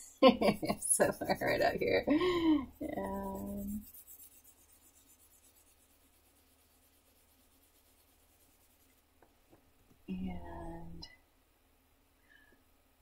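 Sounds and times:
pencil scratching on paper: 0:00.7 - 0:09.0.

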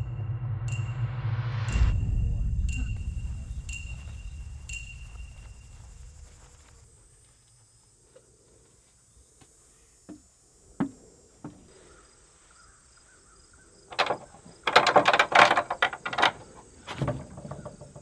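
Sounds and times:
crickets chirping: 0:01.7 - 0:18.0
dull thumps: 0:13.9 - 0:18.0
knocking and rattling at wooden door: 0:13.9 - 0:18.0.

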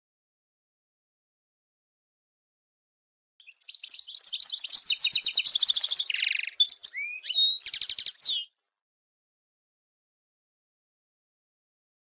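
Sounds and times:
goldfinch singing: 0:03.4 - 0:08.6.

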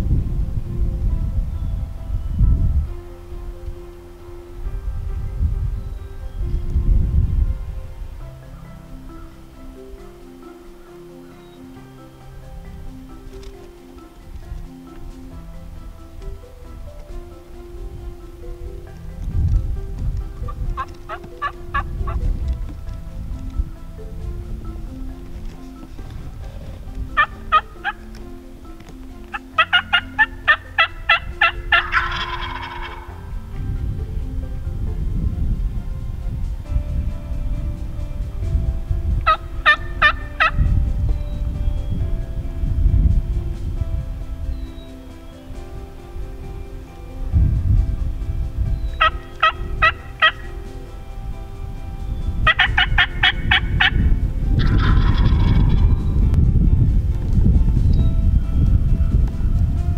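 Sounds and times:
turkeys yelping: 0:20.4 - 0:22.2, 0:25.9 - 0:28.2, 0:28.9 - 0:33.2, 0:39.2 - 0:40.6, 0:48.9 - 0:50.6, 0:52.4 - 0:55.9
turkey gobble: 0:20.5 - 0:22.2, 0:26.5 - 0:28.0, 0:29.3 - 0:33.2, 0:39.3 - 0:40.6, 0:49.0 - 0:50.5, 0:52.5 - 0:54.0, 0:54.6 - 0:55.9.

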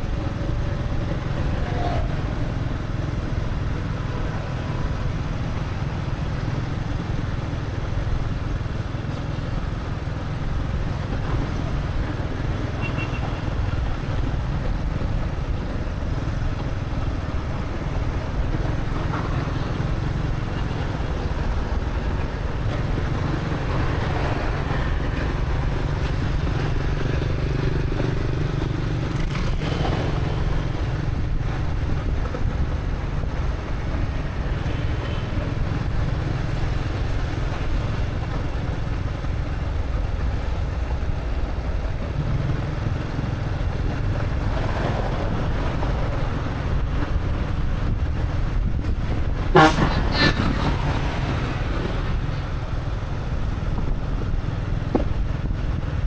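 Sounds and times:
motorbike engine and road noise: 0:00.0 - 0:56.0
vehicle horn toot: 0:12.8 - 0:13.4, 0:49.5 - 0:50.2.

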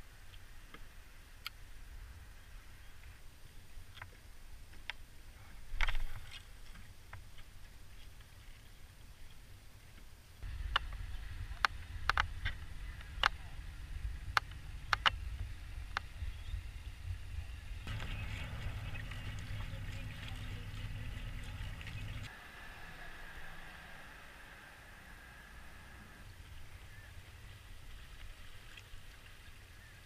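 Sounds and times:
faint steady whine: 0:10.2 - 0:28.8
wind rumble on microphone: 0:10.4 - 0:22.3
sharp clicks and taps: 0:14.3 - 0:15.2.

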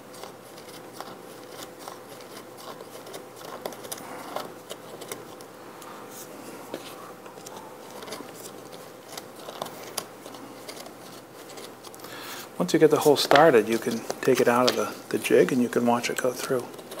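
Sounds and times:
hand drill scraping wood: 0:06.2 - 0:17.0.

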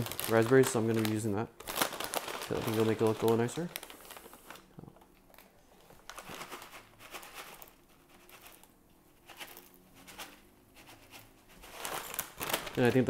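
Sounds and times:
dry berries pattering: 0:00.0 - 0:05.4
foil pouch crinkling: 0:00.0 - 0:10.4, 0:11.5 - 0:13.0.

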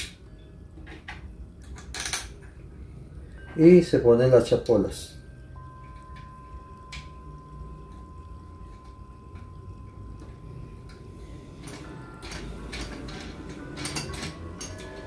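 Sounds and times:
low steady hum: 0:00.0 - 0:15.0
faint high tone: 0:05.1 - 0:13.2.

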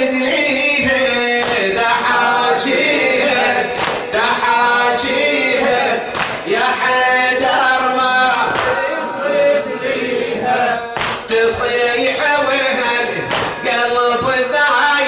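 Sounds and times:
men chanting in unison: 0:00.0 - 0:15.0
person reciting into microphone: 0:00.0 - 0:15.0
hands slapping chests: 0:01.4 - 0:01.7, 0:03.8 - 0:04.1, 0:06.1 - 0:06.4, 0:08.5 - 0:08.8, 0:11.0 - 0:11.3, 0:13.3 - 0:13.6.

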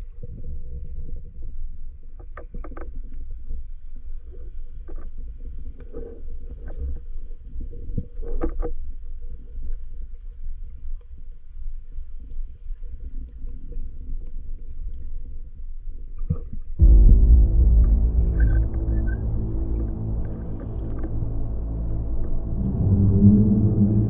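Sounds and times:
underwater water rumble: 0:16.8 - 0:24.0.

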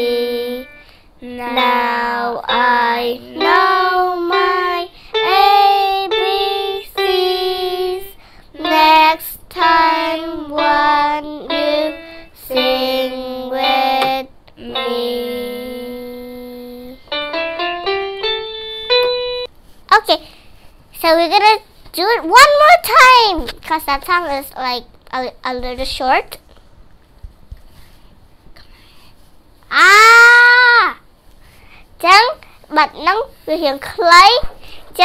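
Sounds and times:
electronic keyboard playing: 0:00.0 - 0:00.9, 0:10.6 - 0:12.7, 0:14.6 - 0:19.5
girl singing: 0:00.0 - 0:17.3.

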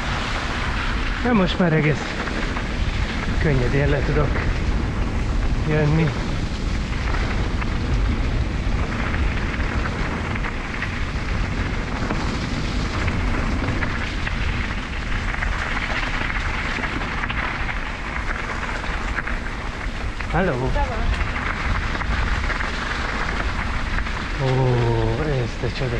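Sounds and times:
tyres rumbling over dirt and stones: 0:00.0 - 0:25.9
bike rattles and clicks: 0:04.2 - 0:20.3.

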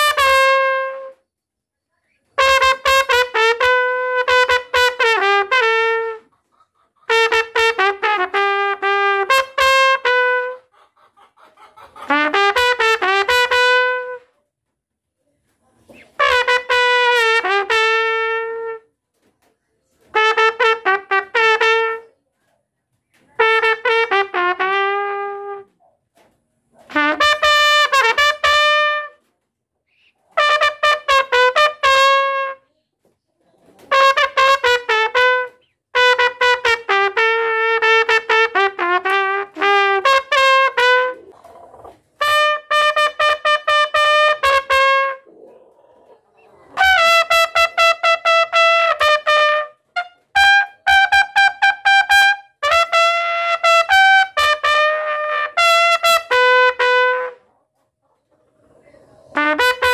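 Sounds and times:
solo trumpet melody: 0:00.0 - 0:01.2, 0:02.4 - 0:06.3, 0:07.1 - 0:10.7, 0:12.1 - 0:14.4, 0:16.1 - 0:19.0, 0:20.1 - 0:22.1, 0:23.3 - 0:25.7, 0:26.9 - 0:29.3, 0:30.3 - 0:32.6, 0:33.9 - 0:41.3, 0:42.1 - 0:45.3, 0:46.8 - 0:57.5, 0:59.4 - 0:59.9.

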